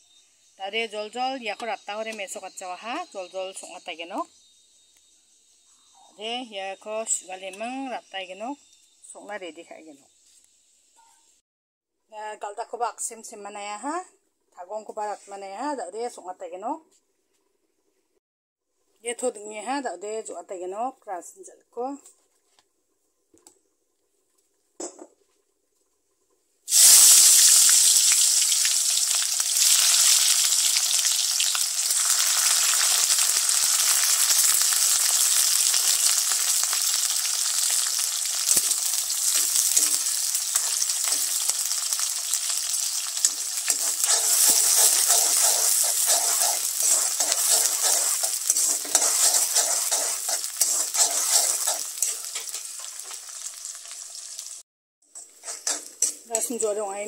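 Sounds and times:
onions sizzling in hot oil: 26.7 - 57.0
metal spoon stirring in wok: 29.0 - 53.8, 55.1 - 56.6.

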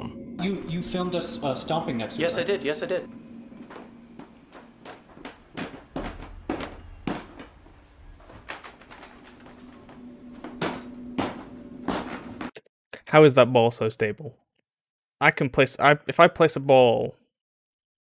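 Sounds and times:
footsteps stomping on stairs: 3.6 - 12.5.

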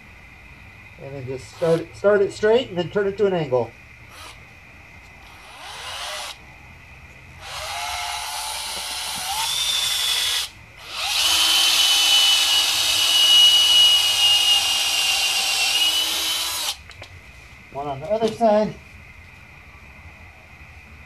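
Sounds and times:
cordless drill drilling wood: 1.5 - 1.9, 4.1 - 4.4, 5.2 - 6.4, 7.4 - 16.8.

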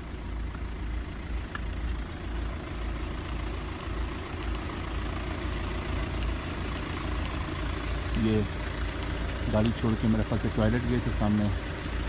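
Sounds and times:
vehicle engines idling: 0.0 - 12.0
faint ticks: 3.8 - 4.7, 8.9 - 9.8.

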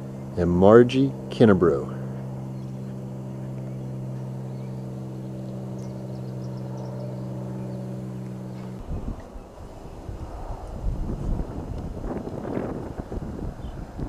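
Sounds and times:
low mechanical hum: 0.0 - 14.0
wind buffeting microphone: 5.4 - 14.0.

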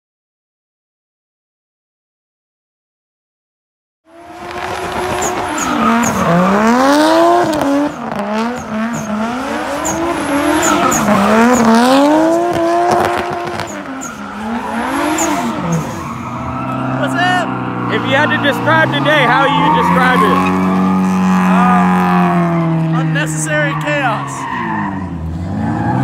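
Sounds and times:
car engine revving hard: 4.1 - 23.4, 24.6 - 26.0
tyres squealing: 4.6 - 26.0.

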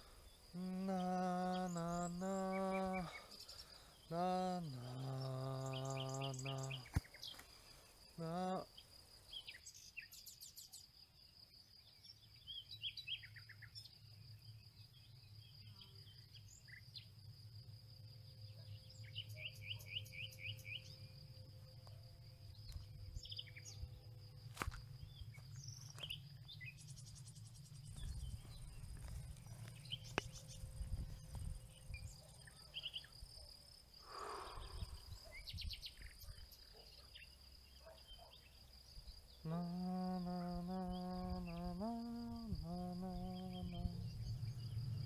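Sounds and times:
high insect whine: 0.0 - 45.0
low rumble: 42.6 - 45.0.

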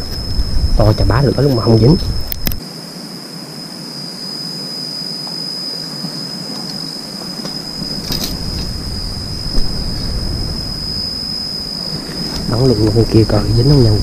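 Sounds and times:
insects calling high-pitched: 0.0 - 14.0
sharp click: 2.2 - 2.6
rustling handling noise: 6.0 - 10.2.

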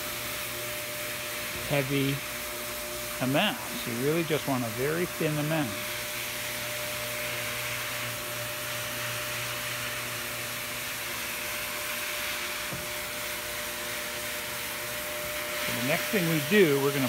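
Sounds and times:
buffer pad whirring: 0.0 - 17.0
floor buffer motor hum: 0.0 - 17.0.

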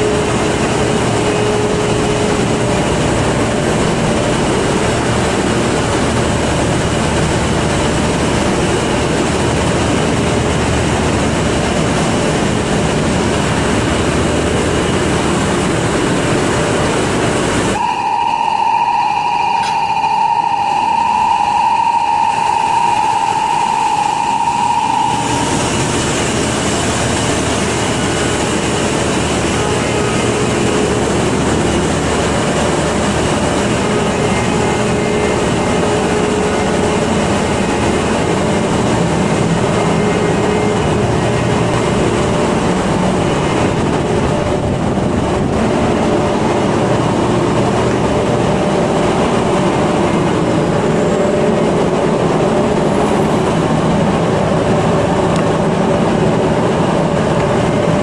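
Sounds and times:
engine room machinery din: 0.0 - 58.0
high-pitched tone: 17.8 - 26.4.

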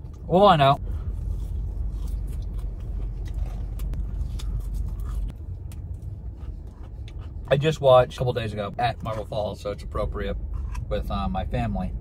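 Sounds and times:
car cabin rumble: 0.0 - 12.0.

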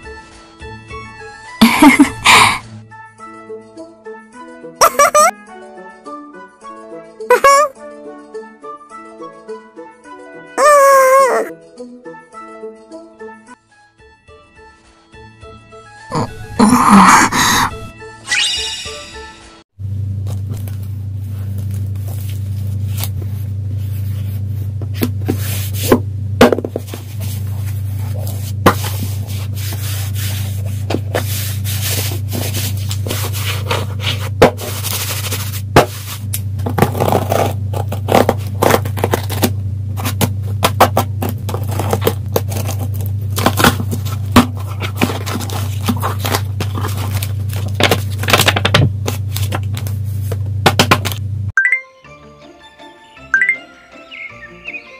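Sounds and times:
packaging handling clicks and rustling: 36.7 - 50.0.

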